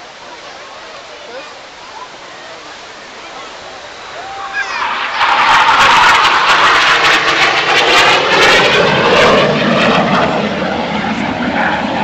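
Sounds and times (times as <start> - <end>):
jet flying past: 2.9 - 12.0.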